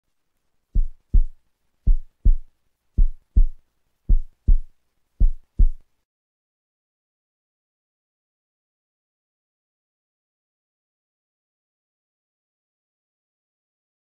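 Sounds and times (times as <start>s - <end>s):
heartbeat thumps: 0.8s - 5.8s.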